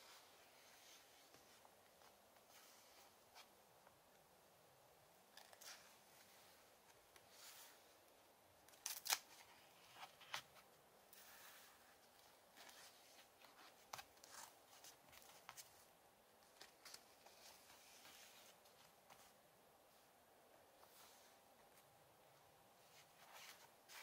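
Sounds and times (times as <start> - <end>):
paper pages rustling: 22.8 - 24.0.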